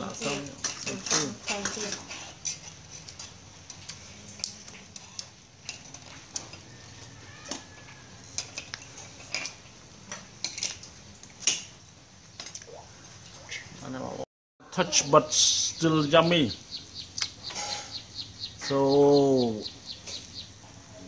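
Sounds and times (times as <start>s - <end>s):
tongs clinking against plates: 17.2s - 18.0s.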